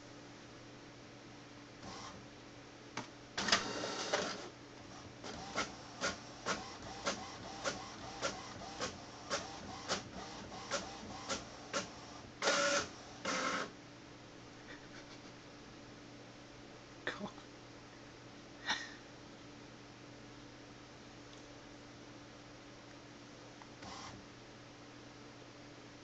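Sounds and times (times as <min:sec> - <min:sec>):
printer motor noise: 0:01.8 - 0:02.2, 0:03.4 - 0:13.8, 0:23.8 - 0:24.2
printer paper feed: 0:01.8 - 0:02.2, 0:03.4 - 0:13.7, 0:23.8 - 0:24.2
printer mechanical clicks: 0:03.0 - 0:04.5, 0:05.2 - 0:13.7.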